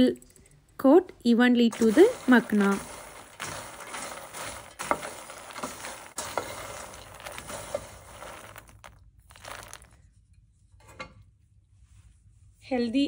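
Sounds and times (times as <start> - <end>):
spatula stirring crunchy seeds in pan: 1.7 - 10.0.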